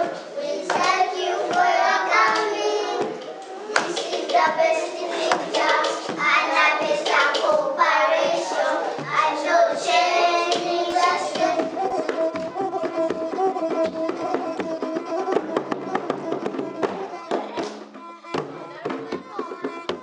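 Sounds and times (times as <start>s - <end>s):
children singing: 0.0s - 20.0s
percussive taps and claps: 0.7s - 3.2s, 3.8s - 4.6s, 5.3s - 7.6s, 10.5s - 20.0s.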